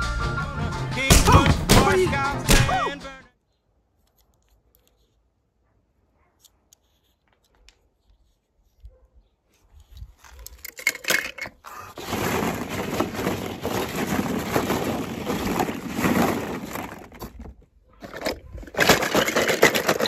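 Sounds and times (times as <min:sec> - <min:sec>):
pebbles crunching and rattling: 0:09.8 - 0:20.0.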